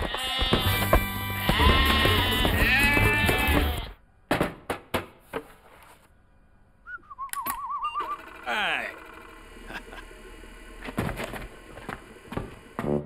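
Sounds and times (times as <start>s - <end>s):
cartoon sheep bleating: 0.0s - 4.0s.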